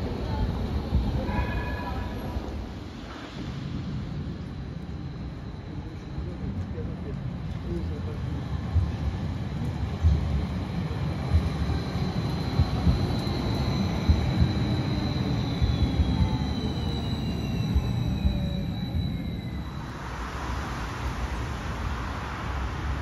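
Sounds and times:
steady high whine: 0.0 - 23.0
tram wheels rumbling on rails: 0.0 - 23.0
whine sliding down in pitch: 12.6 - 21.2.

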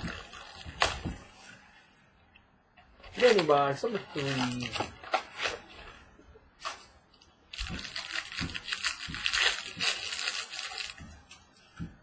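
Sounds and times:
wrapper tearing and crinkling: 3.1 - 5.8, 7.5 - 11.1.

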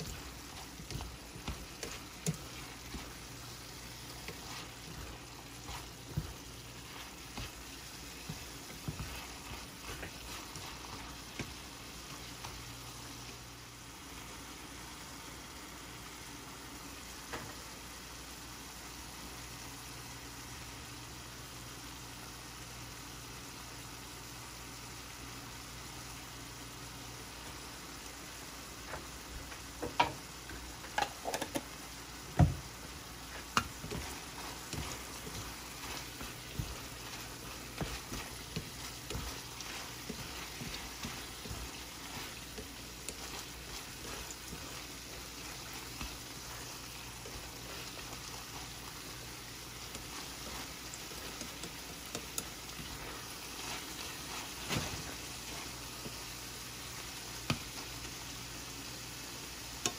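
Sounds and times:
chopsticks scraping a pan: 0.0 - 12.8, 33.1 - 58.0
beef sizzling in a skillet: 0.0 - 59.9.

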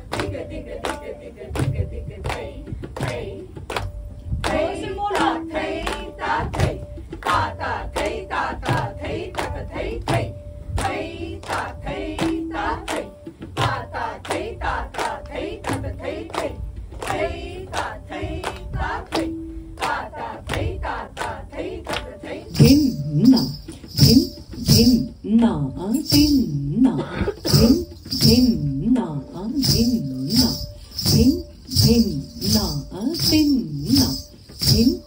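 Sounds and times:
people clapping in unison: 0.0 - 22.6
voices chanting rhythm syllables: 4.5 - 35.0.

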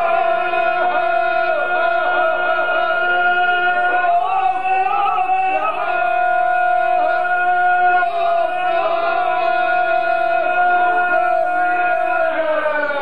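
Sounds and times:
men singing unaccompanied: 0.0 - 13.0.

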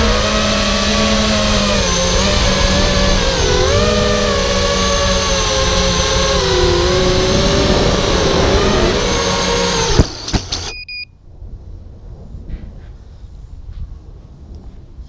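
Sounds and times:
quadcopter motors whining: 0.0 - 11.0
short high beeps: 10.7 - 11.2.

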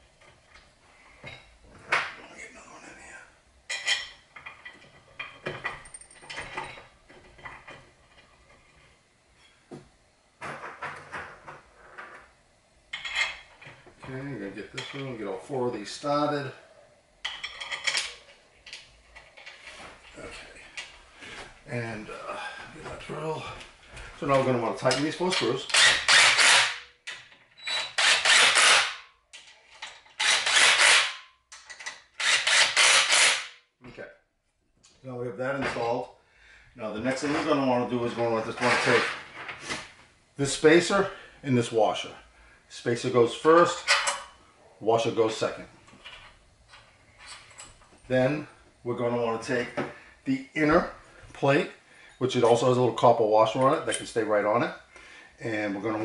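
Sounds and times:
impact driver hammering screws: 25.7 - 26.8, 27.8 - 29.0, 30.2 - 31.2, 32.2 - 33.5.

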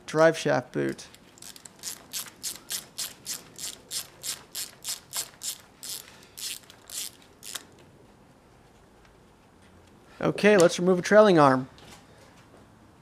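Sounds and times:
hand ratchet clicking: 1.4 - 7.7.

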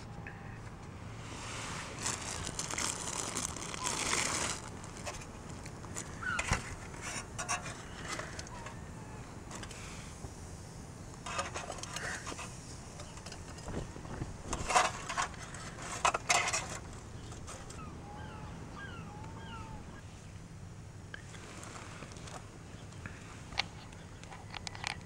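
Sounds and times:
bird chirping: 17.1 - 20.1.

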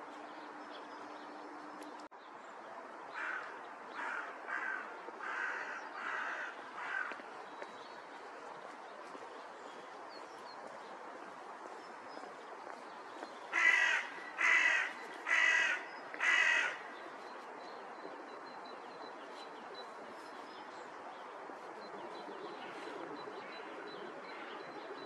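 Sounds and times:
crow cawing: 3.2 - 7.2, 13.5 - 16.9.

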